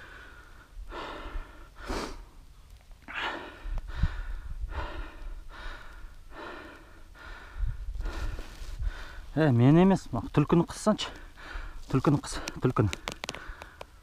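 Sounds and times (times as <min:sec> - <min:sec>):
man breathing hard: 0:00.0 - 0:02.4, 0:03.0 - 0:09.3, 0:11.1 - 0:12.5, 0:13.3 - 0:14.0.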